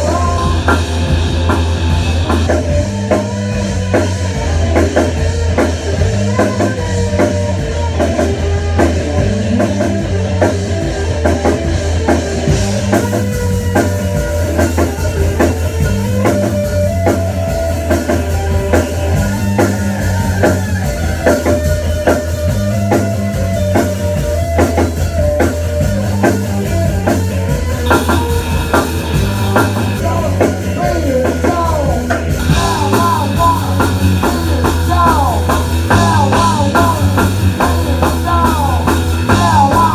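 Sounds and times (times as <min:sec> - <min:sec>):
guitar notes bending: 0:00.0 - 0:39.9
rock band playing live: 0:00.0 - 0:39.9.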